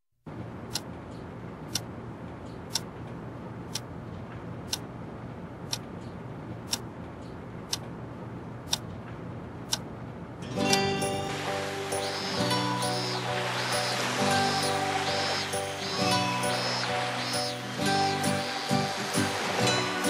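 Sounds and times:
clock ticking: 1.7 - 1.9, 2.7 - 2.9, 3.7 - 3.9, 4.7 - 4.9, 6.7 - 6.9, 8.7 - 8.9, 9.7 - 9.9.

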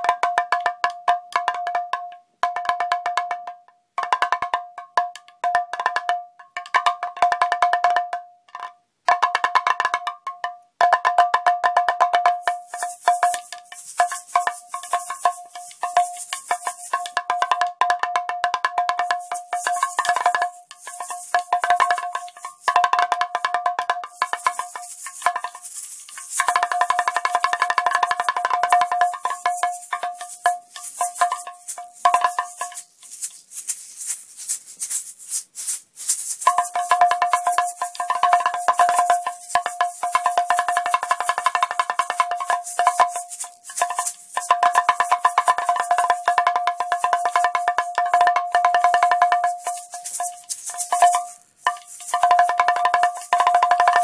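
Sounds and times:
cowbell-like metallic percussion: 0.0 - 54.0
shaker hissing: 12.3 - 17.6, 19.0 - 54.0.

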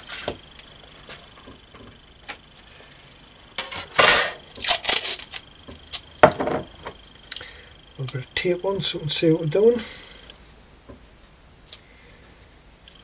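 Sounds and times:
masking tape pulled and torn: 4.0 - 6.0.

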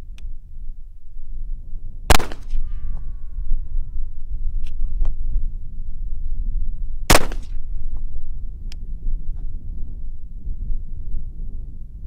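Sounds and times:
low rumble: 0.0 - 12.0
pistol shot with echo: 2.1 - 2.6, 7.1 - 7.6.

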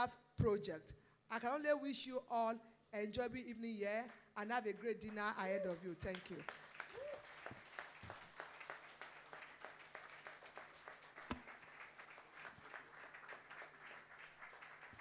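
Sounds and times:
audience applauding faintly: 6.1 - 15.0.

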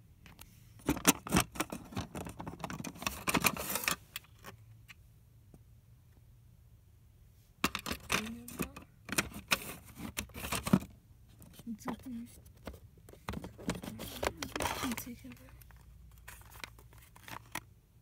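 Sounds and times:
plastic cassette cases clicking: 12.6 - 17.7.

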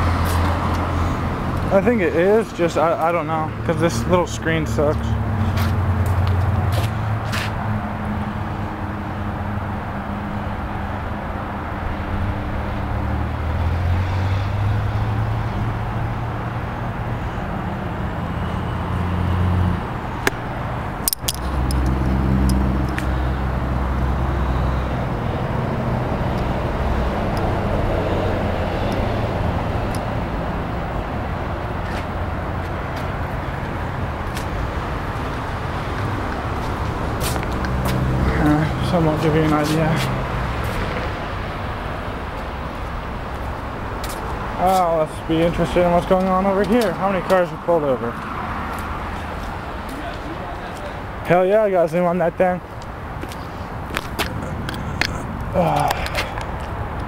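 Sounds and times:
car engines humming: 0.0 - 57.0
sharp clicks: 21.0 - 23.1.

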